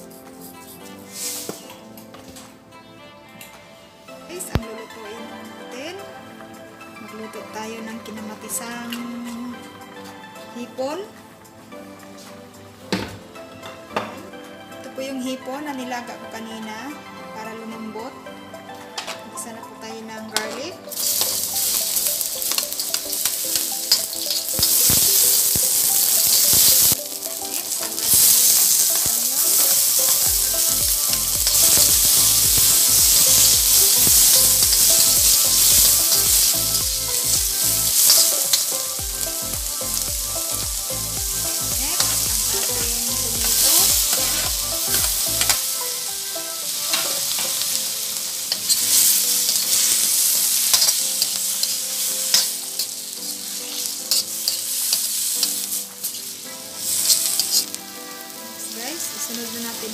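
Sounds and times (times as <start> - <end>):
vegetables sizzling in hot oil: 20.6 - 59.9
metal ladle scraping a pan: 20.9 - 38.9, 48.5 - 56.3.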